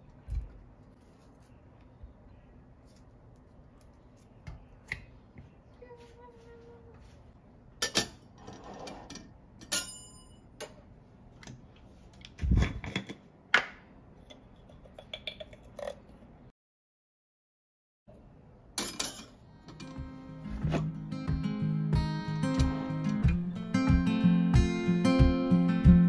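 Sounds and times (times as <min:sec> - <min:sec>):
metal coffee filter clinking: 0:14.3 - 0:16.1.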